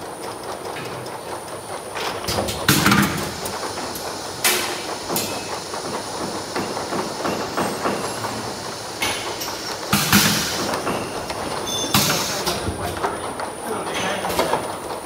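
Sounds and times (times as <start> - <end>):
plastic bottles clattering on conveyor: 0.0 - 15.0
steady mechanical rattle: 0.0 - 15.0.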